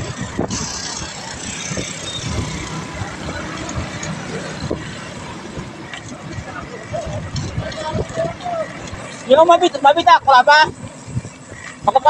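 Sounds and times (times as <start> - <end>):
road and traffic noise: 0.0 - 12.0
wind buffeting microphone: 0.0 - 12.0.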